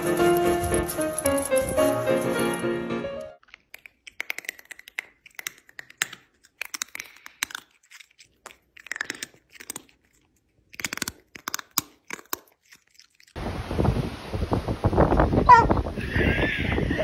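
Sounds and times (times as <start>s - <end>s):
cat chewing: 3.4s - 13.4s
wind on microphone: 13.4s - 17.0s.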